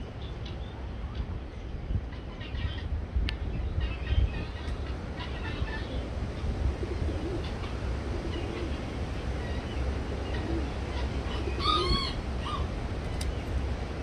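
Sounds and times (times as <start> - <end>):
steady low rumble: 0.0 - 14.0
pheasant calls: 6.8 - 12.7.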